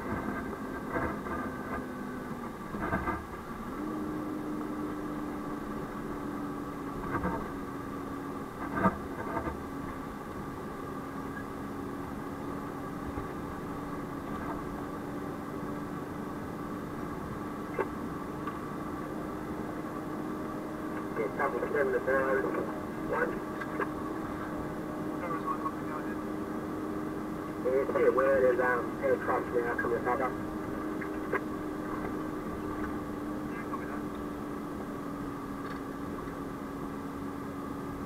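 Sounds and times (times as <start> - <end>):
road noise: 0.0 - 38.0
truck engine hum: 0.0 - 38.0.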